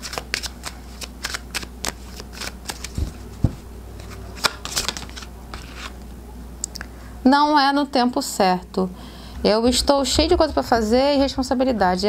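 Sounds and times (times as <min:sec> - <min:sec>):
cards being shuffled: 0:00.0 - 0:06.0.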